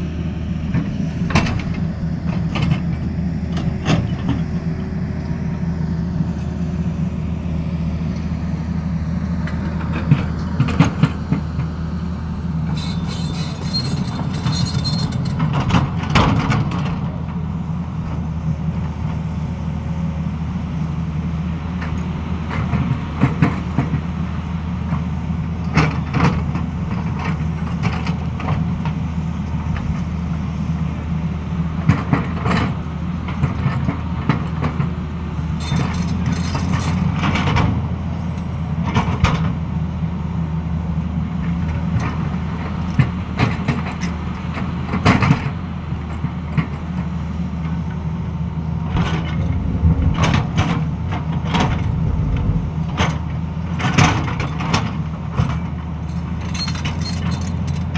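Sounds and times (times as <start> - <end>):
excavator diesel engine running: 0.0 - 57.9.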